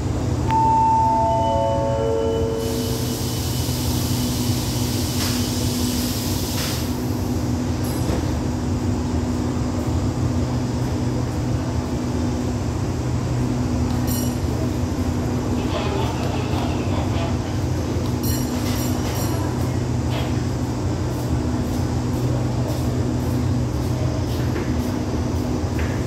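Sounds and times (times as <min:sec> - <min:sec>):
descending station chime: 0:00.5 - 0:03.2.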